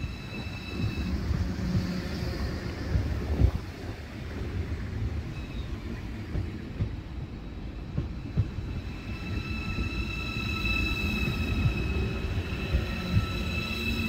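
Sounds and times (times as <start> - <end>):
train high whine: 0.0 - 14.0
train low rumble: 0.0 - 14.0
train wheel clunks: 5.5 - 14.0.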